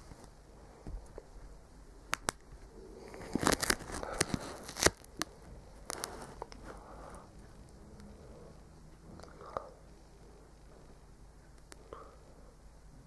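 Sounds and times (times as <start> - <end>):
duct tape crackling: 2.0 - 10.8, 11.4 - 11.9.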